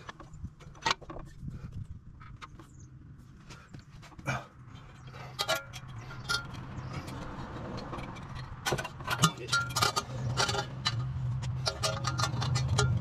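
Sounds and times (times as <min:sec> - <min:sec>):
metal clicks and clinks: 0:05.2 - 0:13.0.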